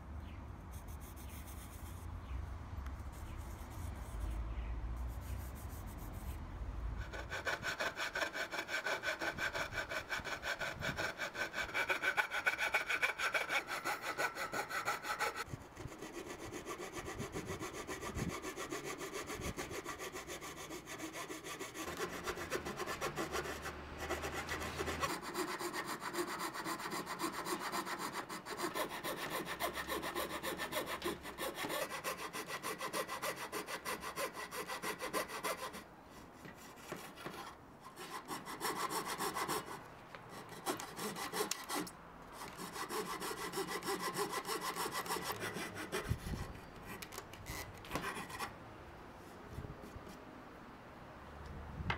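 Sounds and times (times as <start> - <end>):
coping saw cutting wood: 7.0 - 35.8, 36.5 - 48.5.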